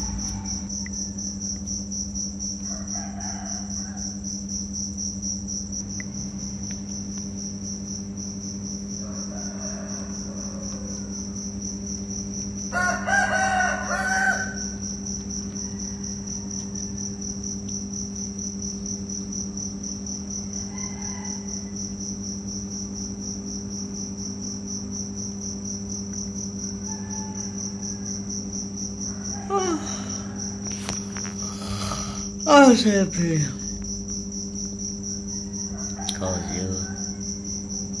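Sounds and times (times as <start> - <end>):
low hum: 0.0 - 2.4
crickets trilling: 0.0 - 38.0.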